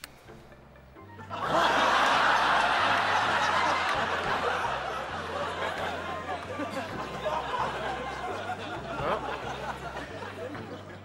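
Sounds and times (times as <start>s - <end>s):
audience laughing: 1.2s - 11.0s.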